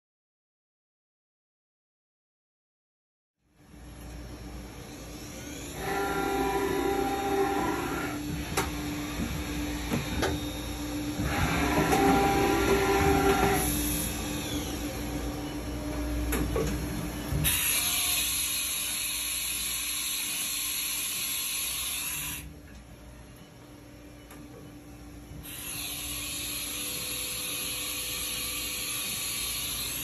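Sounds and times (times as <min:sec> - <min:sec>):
machine hum: 0:03.5 - 0:20.1
milling machine motor whine: 0:04.6 - 0:30.0.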